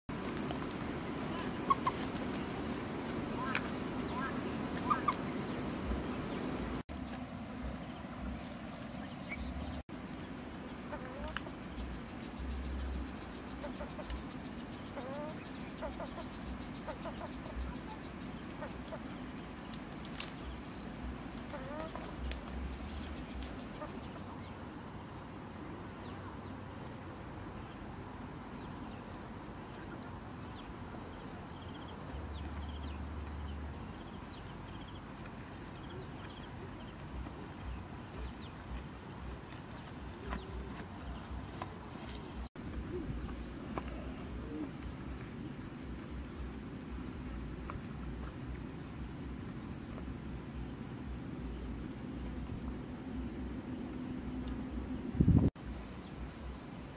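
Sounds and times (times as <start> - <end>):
hens clucking: 0.8 - 5.3, 10.9 - 11.5, 21.4 - 22.6.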